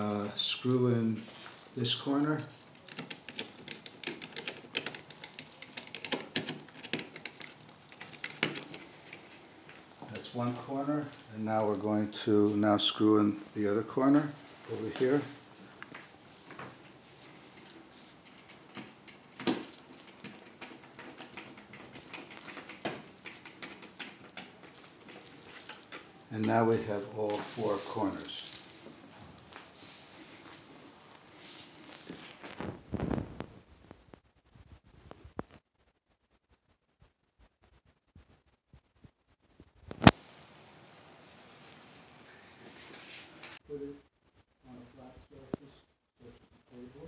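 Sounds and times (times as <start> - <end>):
clicks and crinkles on plastic sheeting: 2.5 - 10.2, 14.9 - 35.7.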